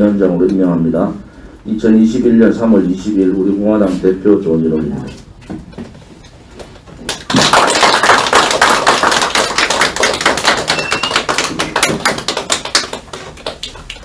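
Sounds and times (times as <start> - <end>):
people clapping: 7.0 - 14.0.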